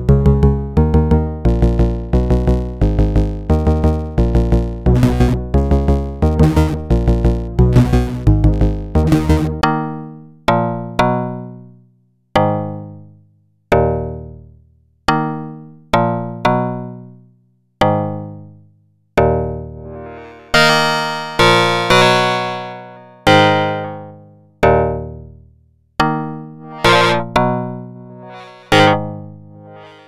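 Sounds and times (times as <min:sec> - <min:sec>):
synthesizer keyboard notes: 0:19.8 - 0:24.1, 0:26.6 - 0:30.0.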